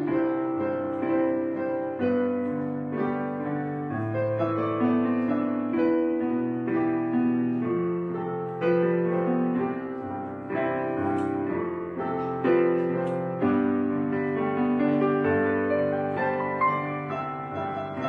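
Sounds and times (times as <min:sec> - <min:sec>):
soft piano piece: 0:00.0 - 0:18.0.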